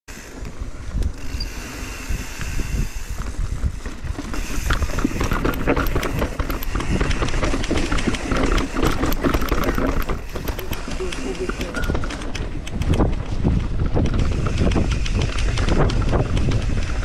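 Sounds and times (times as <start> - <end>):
bike rattling and clattering: 0.1 - 17.0
wind rumbling on microphone: 0.1 - 17.0.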